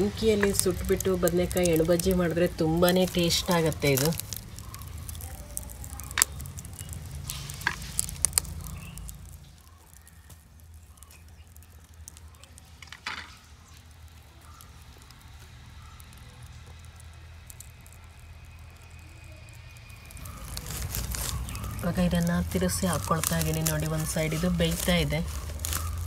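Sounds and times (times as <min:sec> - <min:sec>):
fine ticking: 0:00.0 - 0:13.0
sharp pops and cracks: 0:00.0 - 0:26.0
wood fire crackling and hissing: 0:00.0 - 0:26.0.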